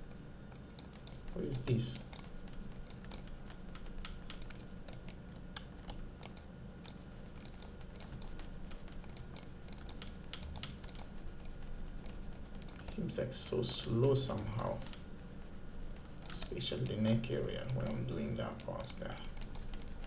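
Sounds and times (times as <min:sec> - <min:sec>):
low steady hum: 0:00.0 - 0:20.0
computer keyboard clicking: 0:00.5 - 0:11.1, 0:16.2 - 0:20.0.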